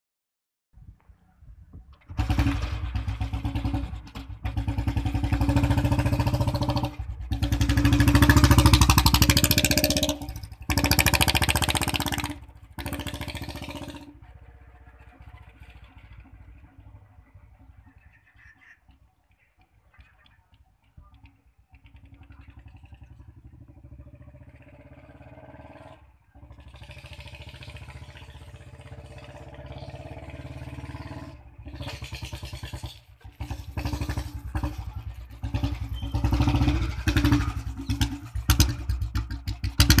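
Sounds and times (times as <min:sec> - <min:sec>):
motorcycle engine thumping: 0:31.7 - 0:40.0.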